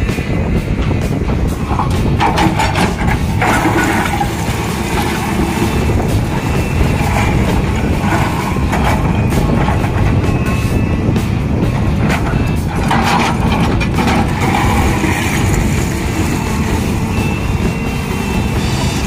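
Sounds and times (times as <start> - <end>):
diesel engine under load: 0.0 - 19.0
stones clattering on steel bucket: 1.7 - 10.4, 11.8 - 16.6.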